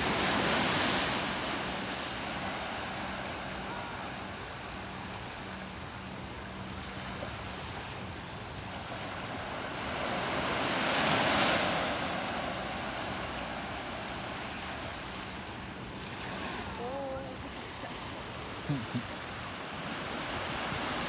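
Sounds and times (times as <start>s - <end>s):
ocean surf washing: 0.0s - 21.0s.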